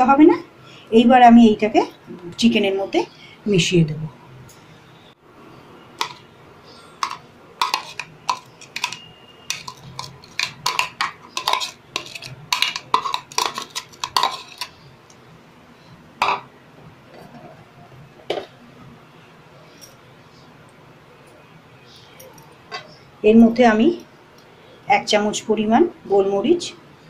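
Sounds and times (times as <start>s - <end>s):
spoon clinking against glass bowls: 6.0s - 6.3s, 7.0s - 14.9s.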